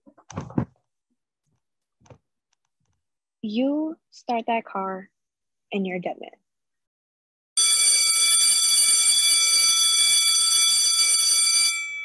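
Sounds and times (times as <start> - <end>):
steady alarm tone: 7.6 - 12.0.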